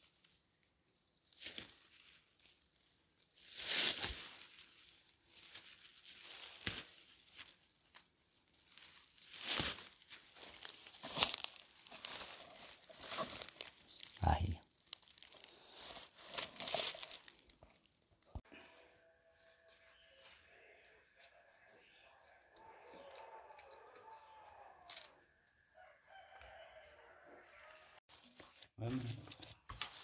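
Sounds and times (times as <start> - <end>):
foliage rustling and crackling: 0.0 - 18.5
herb stems torn by hand: 3.5 - 17.8.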